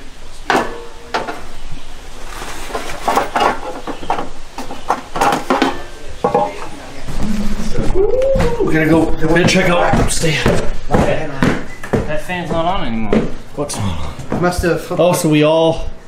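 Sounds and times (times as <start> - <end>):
metal cookware clattering: 0.4 - 1.7, 2.4 - 6.8.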